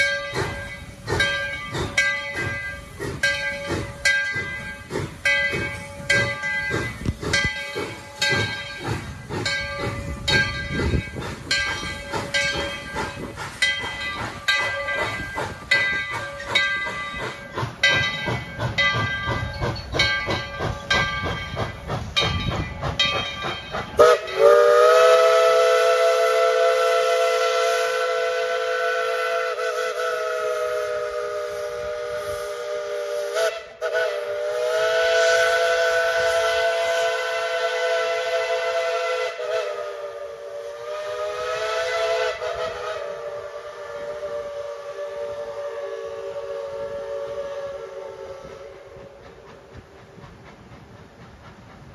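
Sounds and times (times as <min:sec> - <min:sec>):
steam locomotive chuffing: 0:00.0 - 0:51.9
steam whistle blasts: 0:24.0 - 0:49.6.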